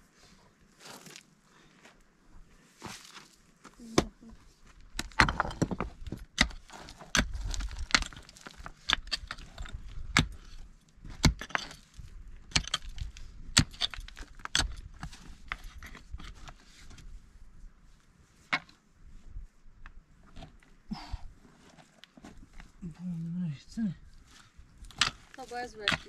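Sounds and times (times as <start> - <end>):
stones clinking and scraping: 4.3 - 17.1, 24.3 - 26.0
pickaxe striking rock: 5.0 - 10.5, 11.2 - 11.8, 12.5 - 13.0, 13.6 - 14.9.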